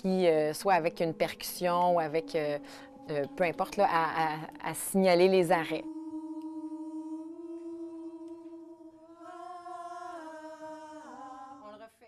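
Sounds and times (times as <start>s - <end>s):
choir singing held note: 5.2s - 11.9s.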